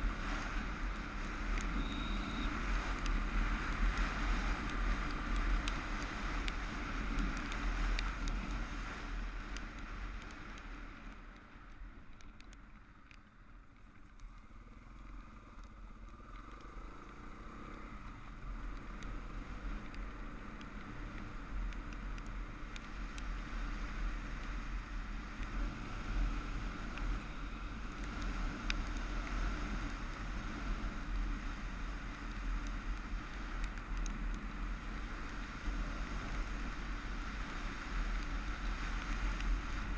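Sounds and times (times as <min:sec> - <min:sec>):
wind rushing over microphone: 0:00.0 - 0:10.8.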